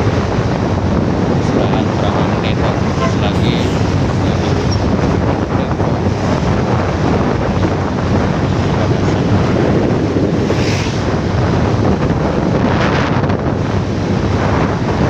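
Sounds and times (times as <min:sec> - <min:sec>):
wind buffeting a microphone: 0:00.0 - 0:15.0.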